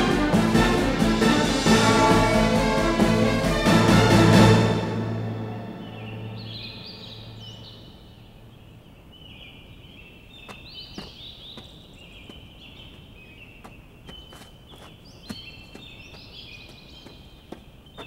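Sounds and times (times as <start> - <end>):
low music note: 0.0 - 7.6
birds chirping: 5.5 - 18.0
sharp taps: 10.5 - 13.0.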